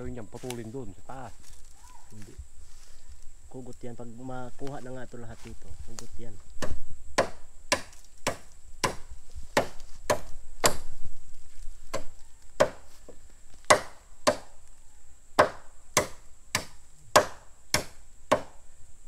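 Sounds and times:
machete chopping bamboo: 0:06.6 - 0:10.9, 0:11.9 - 0:13.0, 0:13.6 - 0:14.6, 0:15.4 - 0:18.6.

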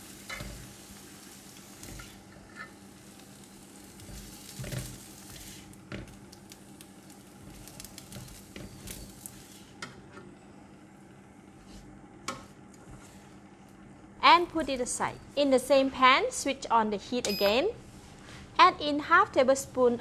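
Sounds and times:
faint sizzle: 0:00.0 - 0:20.0
spatula scraping wok: 0:04.0 - 0:05.8.

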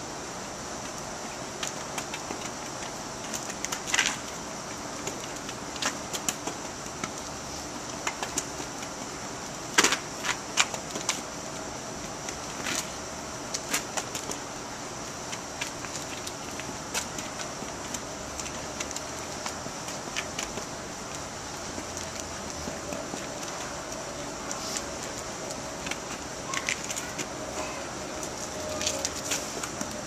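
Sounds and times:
outdoor hiss: 0:00.0 - 0:30.0.

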